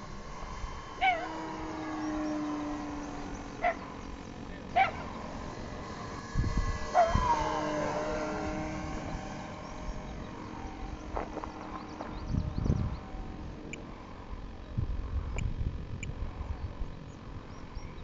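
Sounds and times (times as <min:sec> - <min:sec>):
electric model airplane motor whine: 0:00.0 - 0:18.0
sharp yelping calls: 0:03.5 - 0:03.9.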